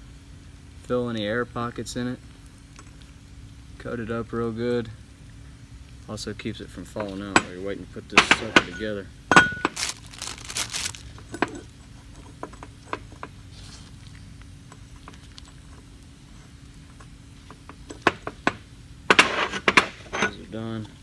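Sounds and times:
plastic crinkling: 9.4 - 11.7.

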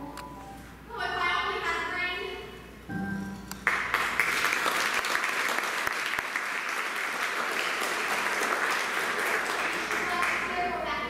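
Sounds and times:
audience applauding: 3.6 - 10.7.

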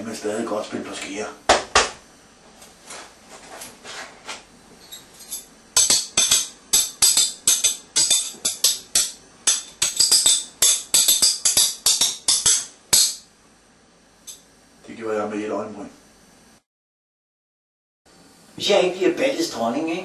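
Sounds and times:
jingling tambourine music: 5.2 - 13.2.

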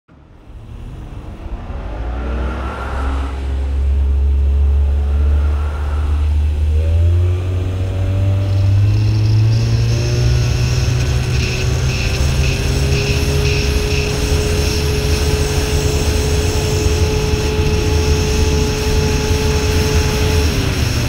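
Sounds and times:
outboard motor accelerating: 0.4 - 21.0
water rushing along hull: 0.6 - 21.0.

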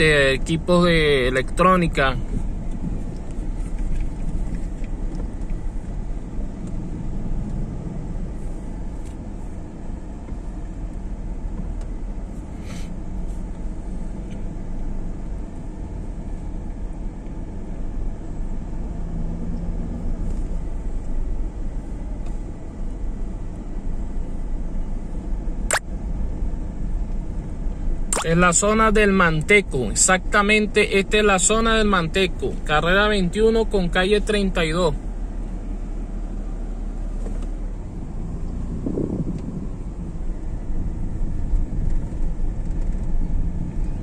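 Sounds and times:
car engine and road noise: 0.0 - 44.0
sharp click: 25.7 - 25.9, 28.1 - 28.3.

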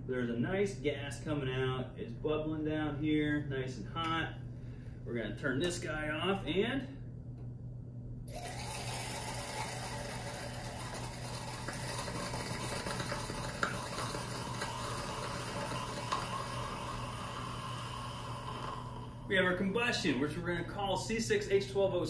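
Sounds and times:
rushing hiss of burning: 9.2 - 19.3.

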